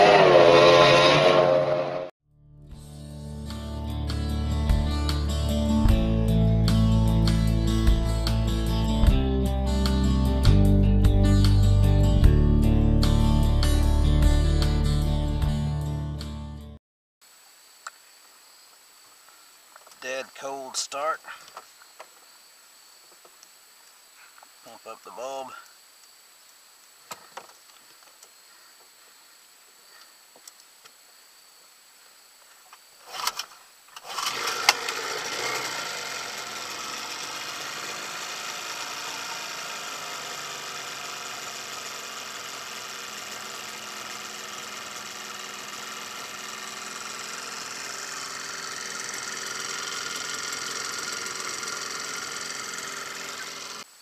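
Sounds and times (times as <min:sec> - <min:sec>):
outboard motor cranking: 0:33.0 - 0:53.9
outboard motor running: 0:34.0 - 0:53.9.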